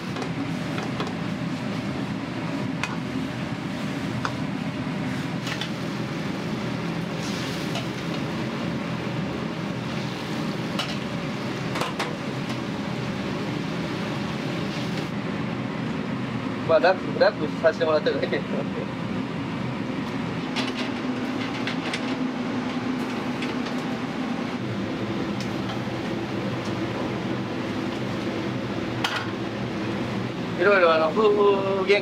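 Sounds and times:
gas burner rushing: 0.0s - 32.0s
food sizzling in wok: 5.0s - 15.1s.

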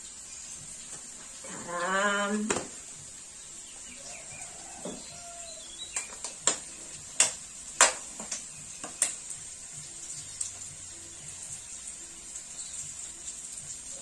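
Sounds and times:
faint bird chirps: 3.5s - 6.2s.

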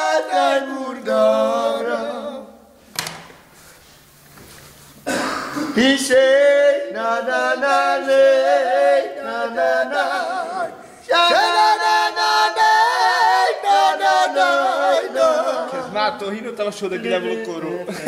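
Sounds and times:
person singing unaccompanied: 5.7s - 18.0s.

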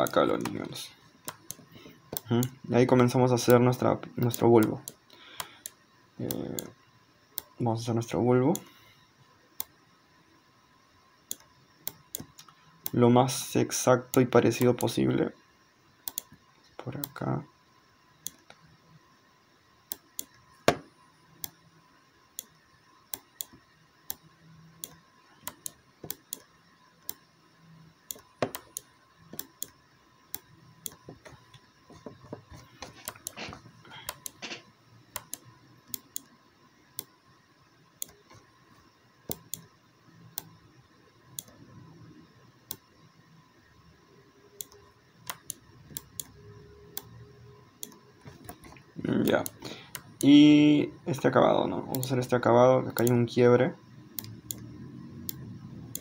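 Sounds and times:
mouse and keyboard clicks: 28.1s - 36.3s, 55.3s - 56.0s.

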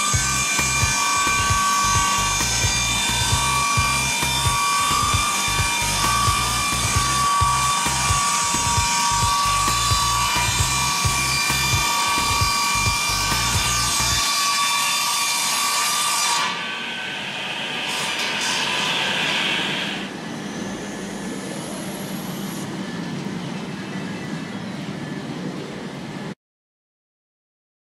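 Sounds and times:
hiss of sawing wood: 0.0s - 20.1s
sawmill running: 0.0s - 23.4s.

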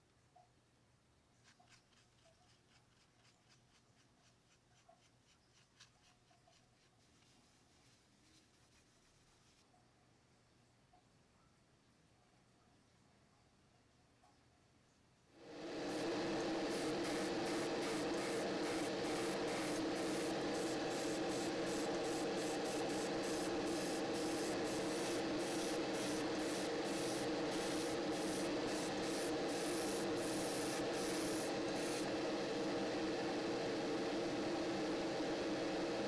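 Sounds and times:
extractor fan humming: 15.3s - 36.0s
airbrush hissing in bursts: 15.4s - 36.0s.

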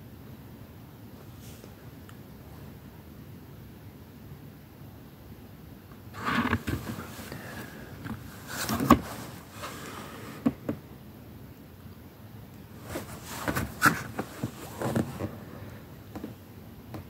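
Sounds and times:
cardboard box rustling and knocking: 6.2s - 10.7s, 12.8s - 15.3s.

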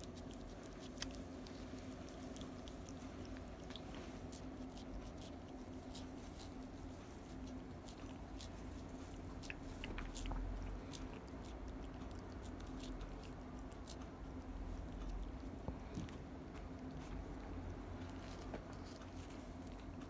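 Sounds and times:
cat licking with wet clicks: 0.0s - 20.0s.

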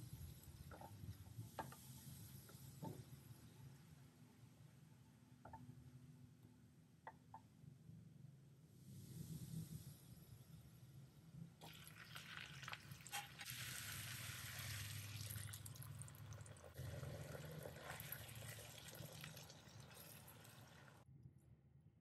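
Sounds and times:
food sizzling in a frying pan: 11.6s - 21.0s.

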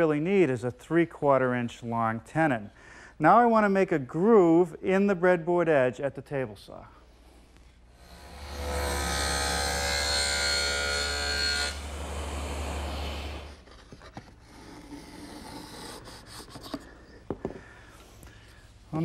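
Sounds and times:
table saw blade whine: 8.0s - 13.6s.

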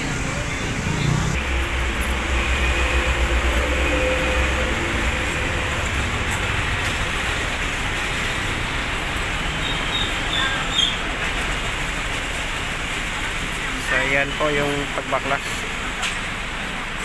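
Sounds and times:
deep low rumble: 0.0s - 9.2s
noisy background roar: 0.0s - 17.0s.

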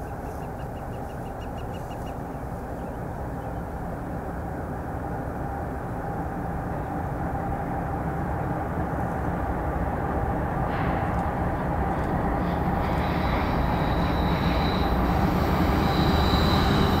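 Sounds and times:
freight train rumble: 0.0s - 17.0s
steady tone: 12.2s - 17.0s.

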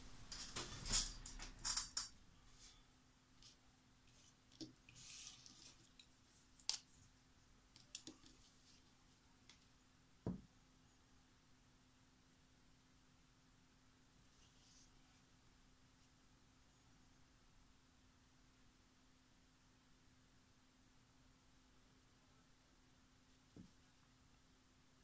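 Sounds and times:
faint steady hum: 0.0s - 25.0s
light clicks and taps: 7.7s - 8.5s.

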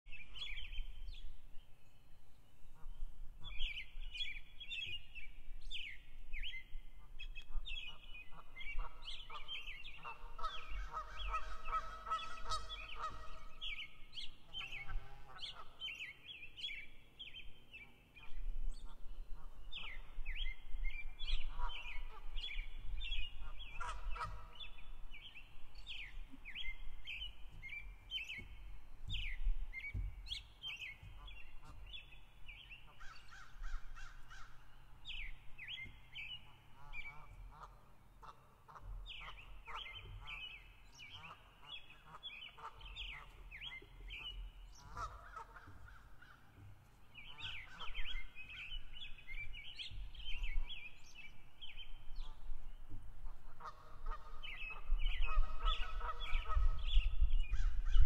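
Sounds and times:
small birds chirping: 0.1s - 58.0s
waterfowl honking: 8.3s - 13.9s, 23.4s - 24.9s, 26.0s - 32.2s, 36.3s - 46.5s, 53.2s - 57.0s.

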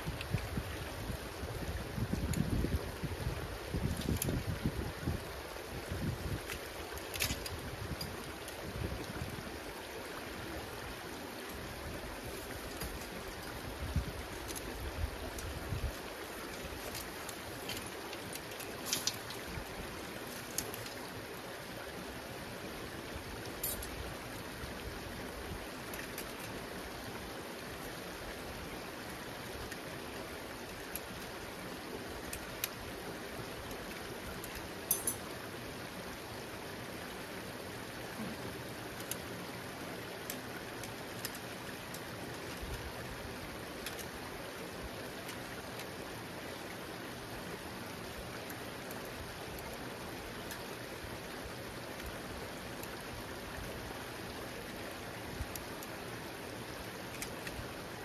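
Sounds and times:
water running through a culvert: 0.0s - 58.0s.

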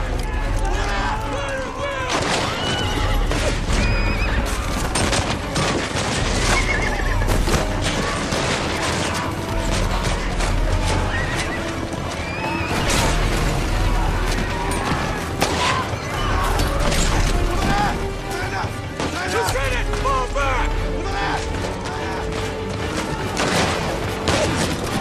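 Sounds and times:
men shouting: 0.0s - 3.5s, 13.8s - 23.6s
music: 0.0s - 25.0s
horses galloping: 0.1s - 25.0s
horses whinnying: 2.1s - 13.2s.

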